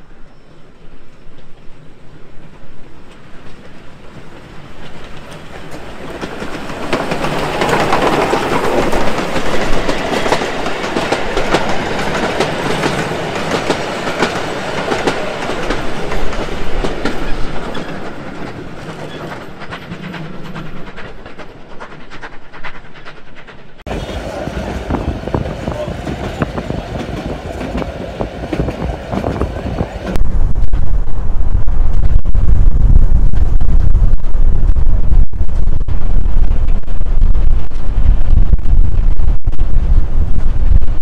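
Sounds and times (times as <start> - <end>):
steam train moving: 0.0 - 41.0
wheels clicking over rail joints: 3.0 - 23.8.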